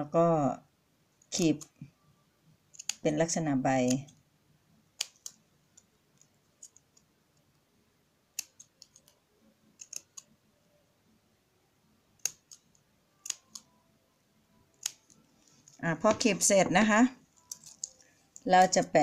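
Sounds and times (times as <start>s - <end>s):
scissors snipping ribbon: 2.7s - 3.2s, 8.4s - 9.2s, 9.8s - 10.3s, 12.2s - 13.7s, 14.8s - 15.2s.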